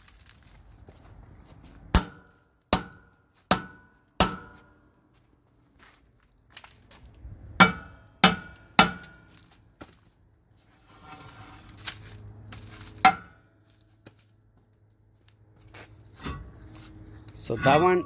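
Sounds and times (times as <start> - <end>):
hammer striking metal drum: 2.8 - 4.6, 7.6 - 9.2
rough metal scraping: 10.6 - 13.9, 15.8 - 18.0.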